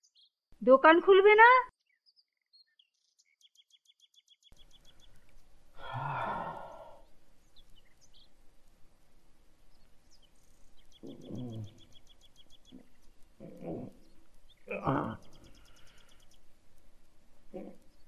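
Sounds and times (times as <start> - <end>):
bird chirping: 0.0 - 8.4, 9.6 - 16.6
low vocal sound: 5.8 - 7.0, 11.0 - 11.8, 13.4 - 14.0, 14.7 - 15.3
man sighing loudly: 5.8 - 7.0.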